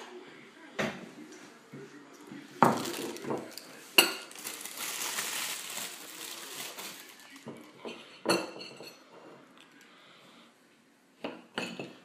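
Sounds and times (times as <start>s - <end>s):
plastic wrapping crinkling: 2.6s - 7.7s.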